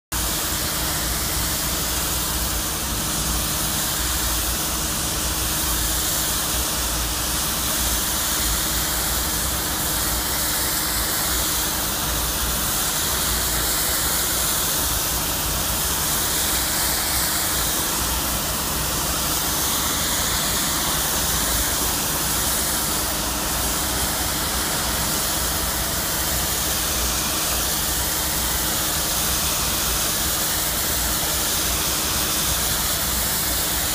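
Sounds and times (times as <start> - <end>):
machine humming: 0.2 - 33.9
water spray and steam hissing: 0.2 - 33.9.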